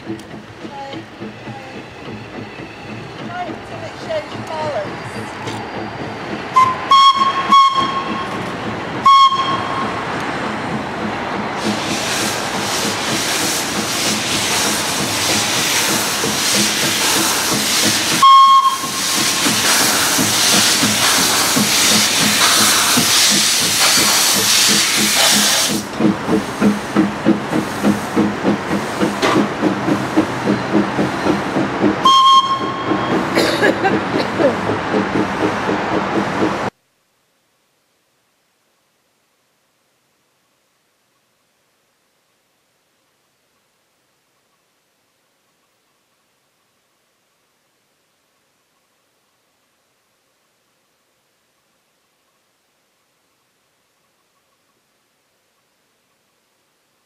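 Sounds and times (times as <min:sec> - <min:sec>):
steam whistle toots: 0:06.5 - 0:08.3, 0:09.0 - 0:10.0, 0:18.2 - 0:19.2, 0:32.0 - 0:33.1
steam hissing: 0:11.4 - 0:36.7
steam engine exhaust chuffing: 0:11.6 - 0:36.7.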